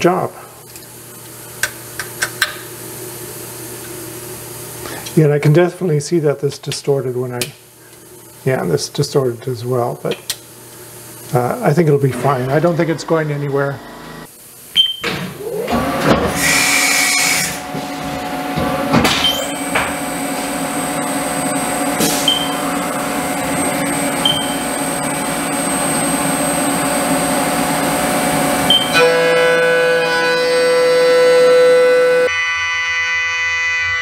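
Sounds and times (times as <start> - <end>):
cnc spindle whine: 11.3 - 14.3, 19.2 - 34.0.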